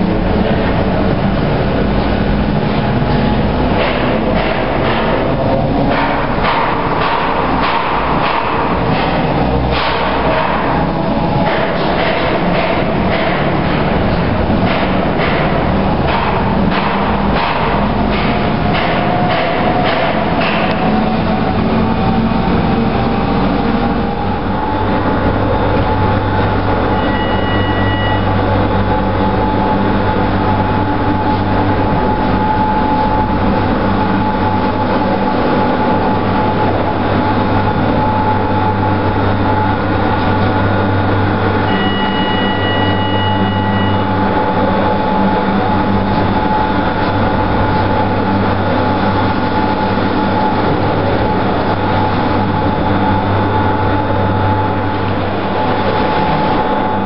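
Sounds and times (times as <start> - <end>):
lift machinery hum and rumble: 0.0 - 57.0
electronic beeps: 26.9 - 28.4, 41.7 - 44.1.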